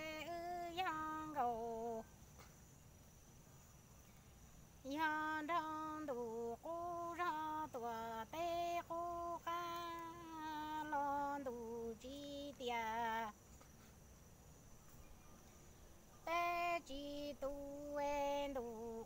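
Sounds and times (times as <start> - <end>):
woman singing unaccompanied: 0.0 - 2.2, 4.8 - 13.5, 16.2 - 19.0.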